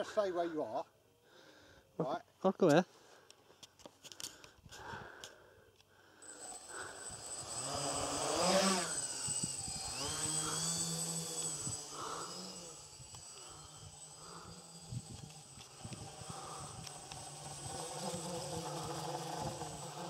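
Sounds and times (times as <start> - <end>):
drone propellers buzzing: 6.2 - 20.0.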